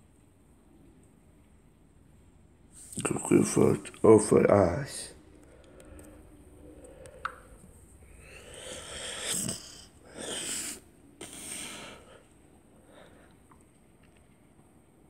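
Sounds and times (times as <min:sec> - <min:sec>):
person breathing close to microphone: 0:05.4 - 0:13.4.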